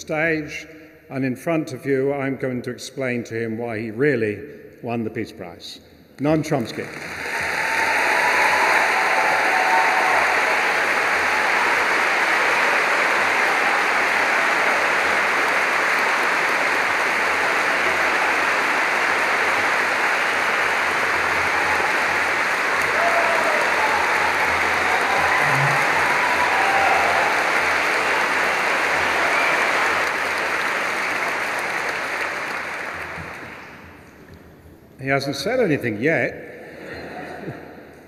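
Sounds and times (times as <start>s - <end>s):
large audience applauding: 6.5s - 34.1s.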